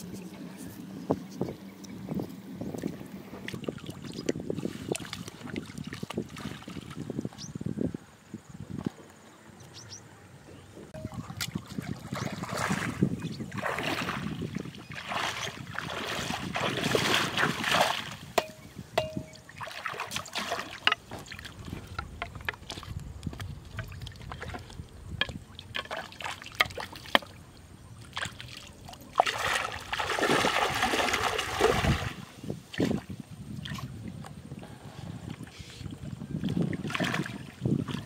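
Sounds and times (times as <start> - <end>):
river water splashing: 1.8 - 7.2, 11.0 - 34.0, 36.3 - 38.0.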